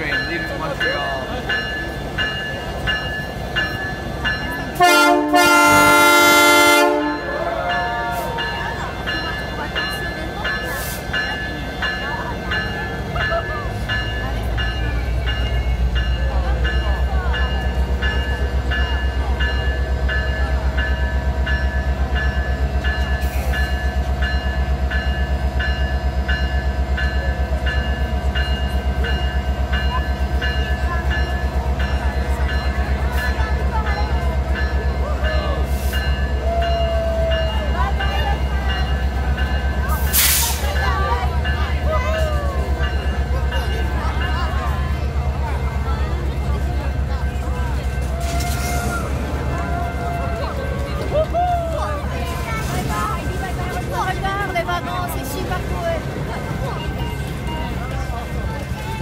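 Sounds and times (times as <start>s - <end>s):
diesel locomotive running: 0.0s - 59.0s
locomotive bell ringing: 0.0s - 59.0s
locomotive air horn blasts: 4.8s - 7.4s.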